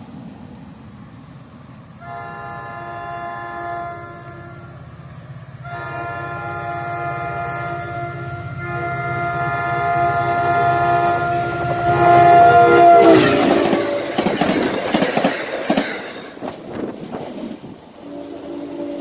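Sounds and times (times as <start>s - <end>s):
train horn blasts: 2.0s - 4.8s, 5.6s - 14.6s, 18.0s - 19.0s
passenger cars rushing and clattering: 13.3s - 18.0s.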